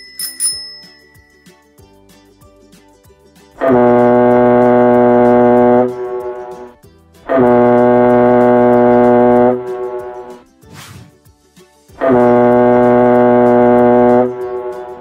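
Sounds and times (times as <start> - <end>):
faint background music: 0.0 - 15.0
deep horn blast: 3.6 - 6.7, 7.3 - 10.4, 12.0 - 15.0.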